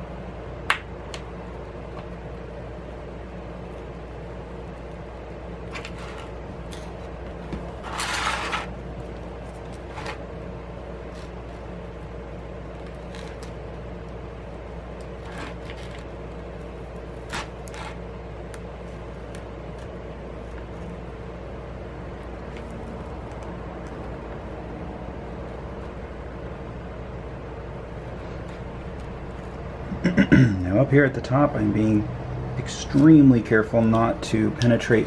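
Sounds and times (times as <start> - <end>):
low room hum: 0.0 - 35.0
tool scraping: 5.7 - 8.8, 17.2 - 18.0.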